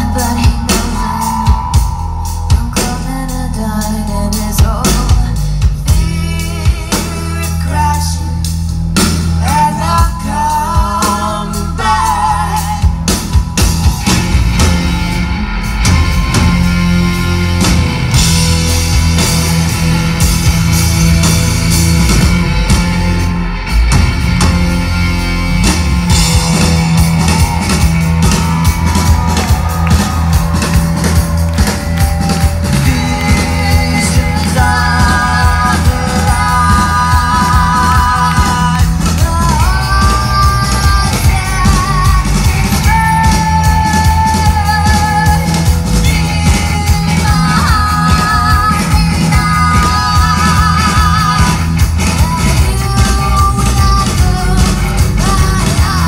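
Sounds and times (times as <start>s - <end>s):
person singing: 0.0s - 8.7s, 9.4s - 15.0s, 26.1s - 56.0s
bass guitar: 0.0s - 56.0s
distorted electric guitars: 0.0s - 56.0s
drum kit: 0.0s - 56.0s.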